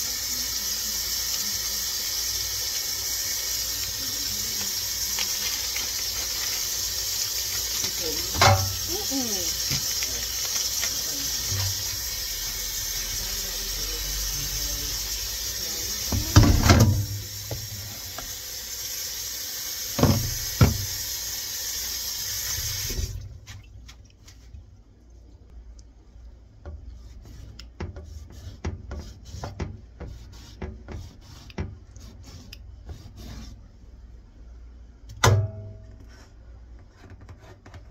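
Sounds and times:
tap running into steel sink: 20.0 - 21.0.

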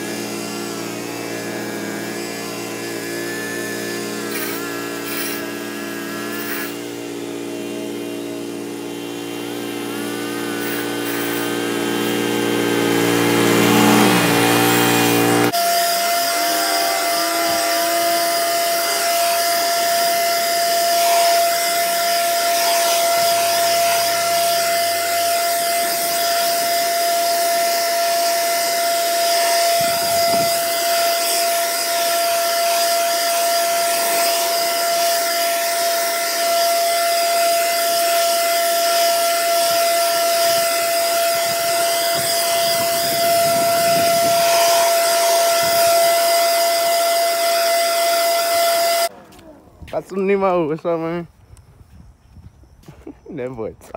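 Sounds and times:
two-stroke engine running: 6.8 - 15.6, 22.2 - 27.6, 39.8 - 46.1.

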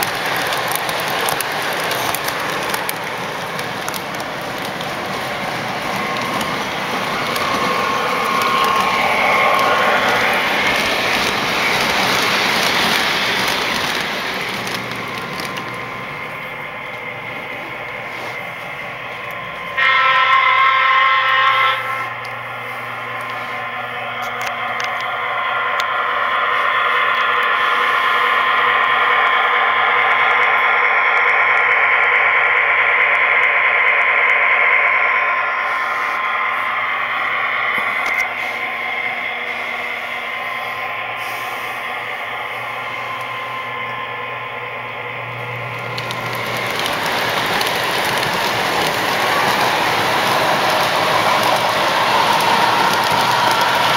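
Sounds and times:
model train wheels clattering: 0.0 - 18.3, 45.7 - 53.9
model train motors whirring: 0.0 - 53.9
steady hum: 0.0 - 53.9.

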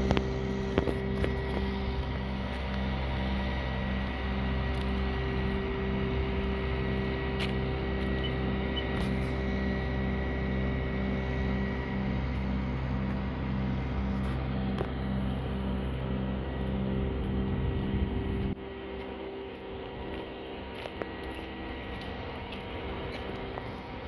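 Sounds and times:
large engine throbbing hum: 0.0 - 24.0.

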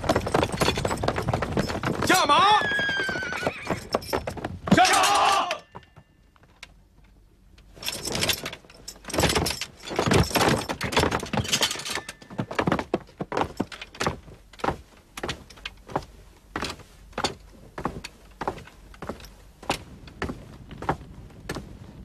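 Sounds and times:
sabres clanking and jangling: 0.0 - 2.4, 3.8 - 14.6
horse whinnying: 2.4 - 4.1.

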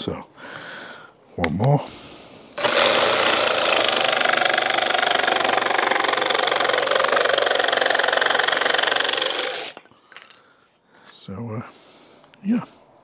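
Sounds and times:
jigsaw cutting laminate board: 2.6 - 9.8.

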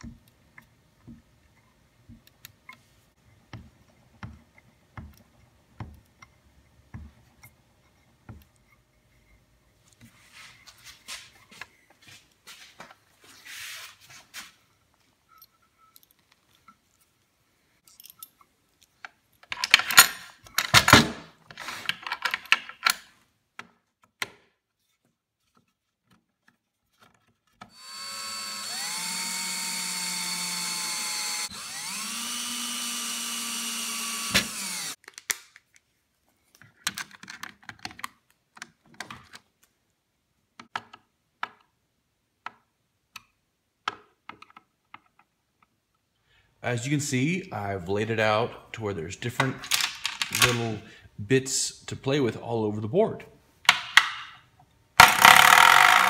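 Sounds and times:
cordless drill driving screws: 27.7 - 35.0, 55.0 - 56.0.

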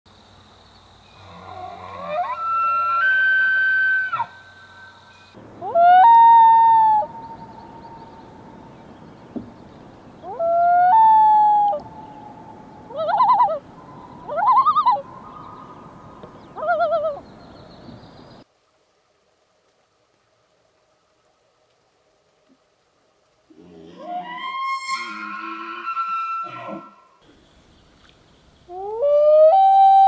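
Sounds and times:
loon calling: 10.2 - 17.3, 23.8 - 27.0, 28.7 - 30.0.

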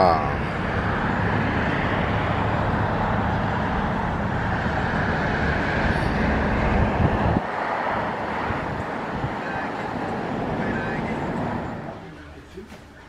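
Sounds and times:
truck engine rumbling: 0.0 - 13.0.

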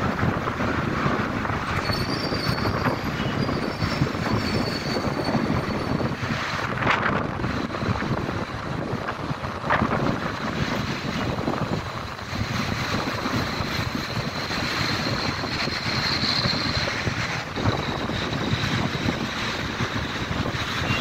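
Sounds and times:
city traffic: 0.0 - 21.0
wind buffeting microphone: 0.0 - 21.0.

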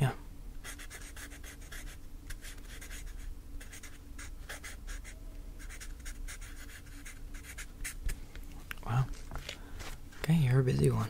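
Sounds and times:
pen scratching on paper: 0.6 - 8.1.

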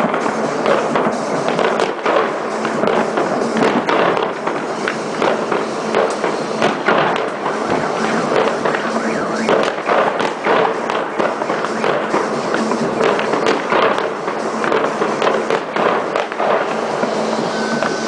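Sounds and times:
fireworks crackling and banging: 0.0 - 18.0.

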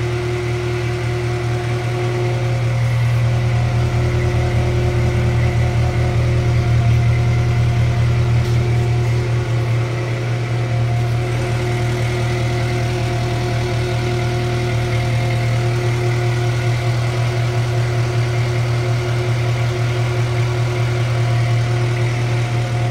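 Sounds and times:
machine engine idling: 0.0 - 22.9.

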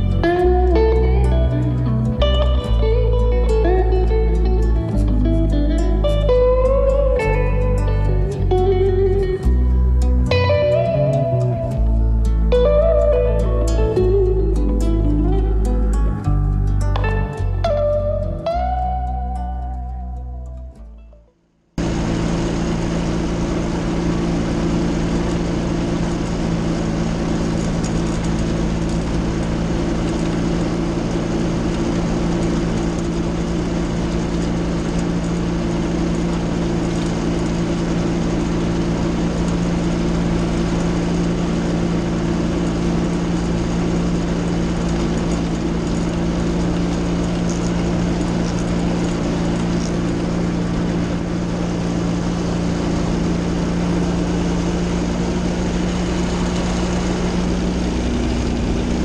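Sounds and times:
light aircraft engine and propeller: 21.8 - 59.0.

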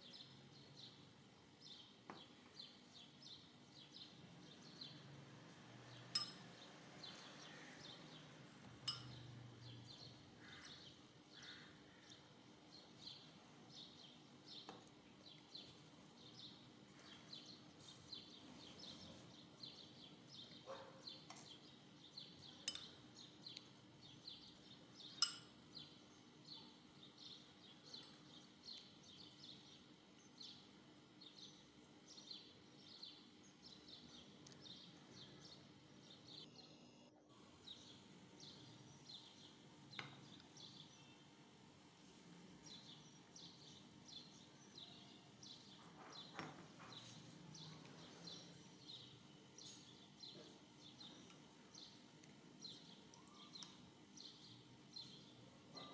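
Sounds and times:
spoon clinking on glass: 6.1 - 6.6, 8.8 - 9.3, 22.6 - 23.0, 25.2 - 25.6
small bird high chirps: 52.6 - 55.2.

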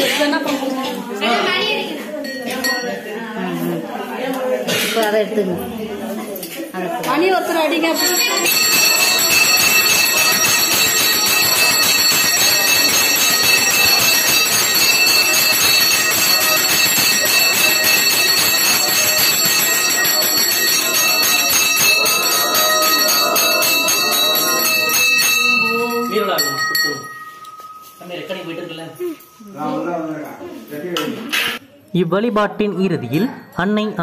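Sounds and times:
bell ringing rapidly: 7.6 - 29.8.

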